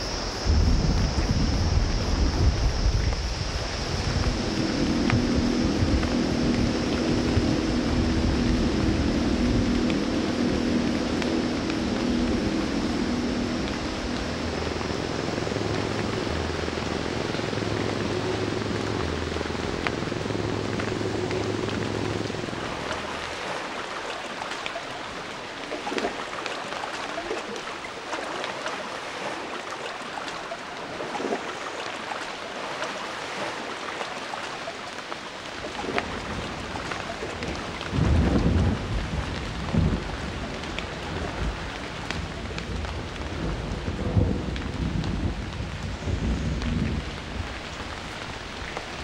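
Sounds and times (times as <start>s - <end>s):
deep rolling thunder: 0.0s - 23.3s, 36.2s - 49.0s
steady rain falling: 0.0s - 49.0s.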